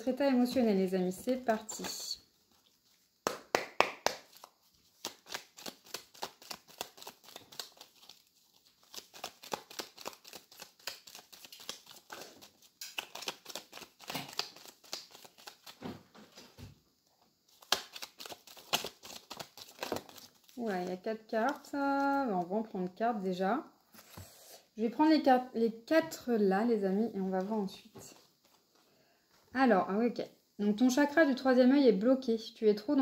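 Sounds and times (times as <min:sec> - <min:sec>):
cards being shuffled: 0:01.5 - 0:02.8, 0:03.4 - 0:15.8, 0:17.5 - 0:22.4.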